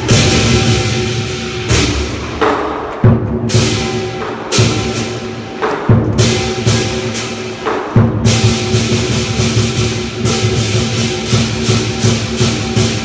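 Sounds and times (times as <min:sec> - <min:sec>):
cymbal clashes: 0:00.0 - 0:02.8, 0:03.5 - 0:13.0
large drum beating: 0:00.0 - 0:13.0.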